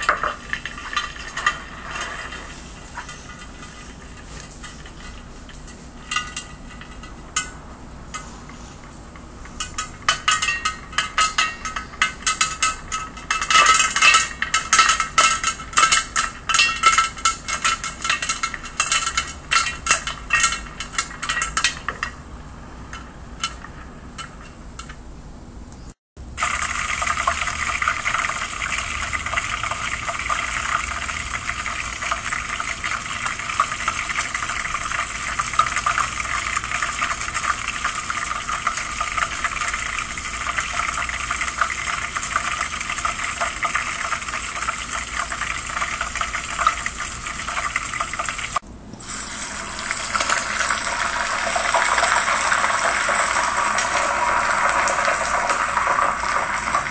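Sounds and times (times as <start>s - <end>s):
popcorn popping in a pot: 0.0s - 25.0s, 26.2s - 56.9s
steak sizzling in a frying pan: 26.4s - 56.9s.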